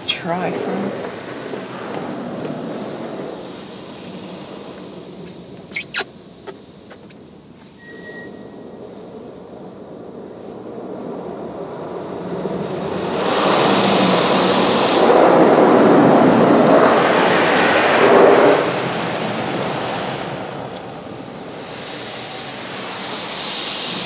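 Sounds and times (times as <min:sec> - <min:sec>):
water jets drumming on car: 0:11.4 - 0:24.0.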